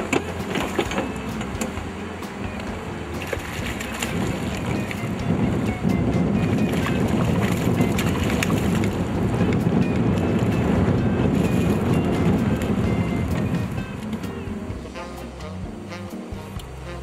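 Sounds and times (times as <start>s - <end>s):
river rushing: 0.0s - 17.0s
wind noise: 0.0s - 17.0s
fish splashing in water: 3.2s - 5.2s, 6.6s - 9.1s.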